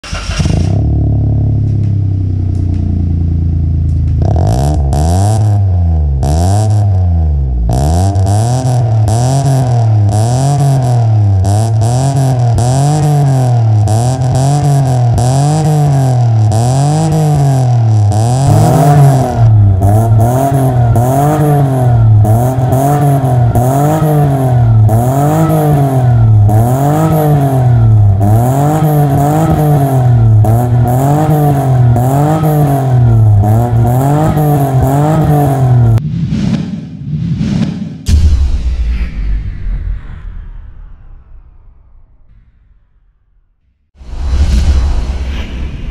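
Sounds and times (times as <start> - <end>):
car engine revving: 0.0 - 36.0.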